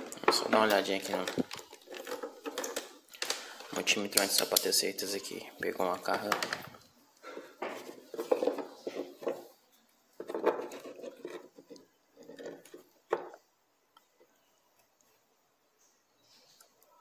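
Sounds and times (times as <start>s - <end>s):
plastic objects clattering: 0.0s - 4.9s, 5.8s - 9.6s, 10.2s - 13.4s.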